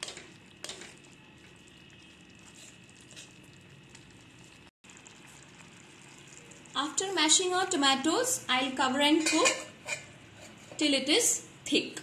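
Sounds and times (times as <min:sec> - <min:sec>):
spatula scraping metal pan: 0:09.2 - 0:10.9.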